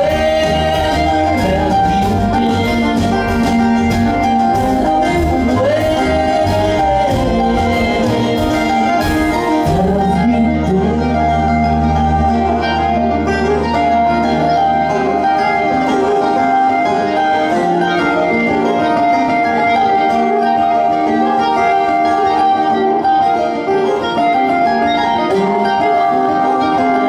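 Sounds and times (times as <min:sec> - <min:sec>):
upright bass: 0:00.0 - 0:20.6
acoustic guitar: 0:00.0 - 0:27.0
banjo: 0:00.0 - 0:27.0
fiddle: 0:00.0 - 0:27.0.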